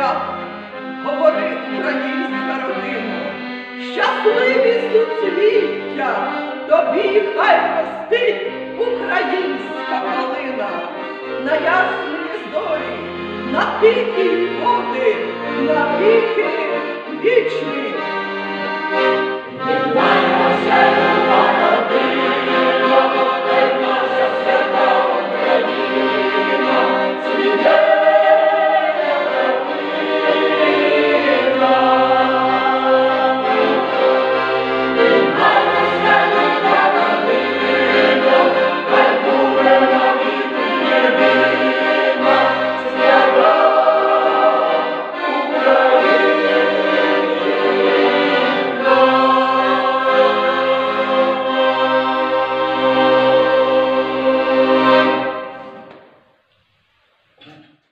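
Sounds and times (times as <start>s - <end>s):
choir singing in harmony: 0.0s - 1.9s, 18.0s - 56.1s
accordion: 0.0s - 56.2s.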